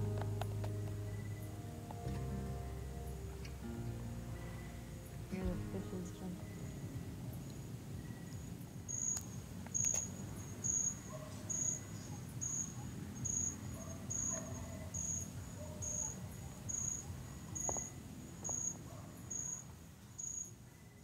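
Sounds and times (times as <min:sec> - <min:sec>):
low steady rumble: 0:00.0 - 0:08.8
insect chirping: 0:00.4 - 0:02.0, 0:02.6 - 0:21.0.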